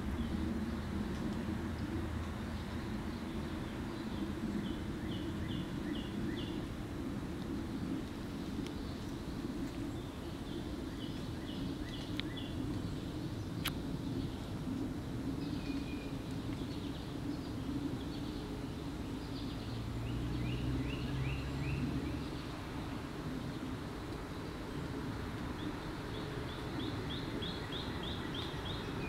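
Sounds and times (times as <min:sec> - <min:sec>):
low rumble: 0:00.0 - 0:25.5
low hum: 0:00.0 - 0:29.0
bird chirping: 0:15.4 - 0:22.9, 0:25.6 - 0:29.0.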